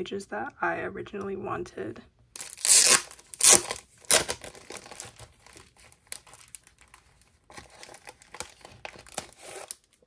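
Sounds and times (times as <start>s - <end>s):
plastic pages crinkling: 2.4s - 10.0s.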